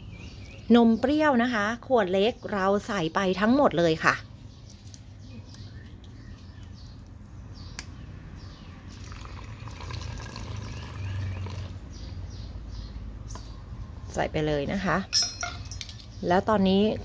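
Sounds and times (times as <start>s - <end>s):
liquid trickling into a funnel: 8.9s - 11.8s.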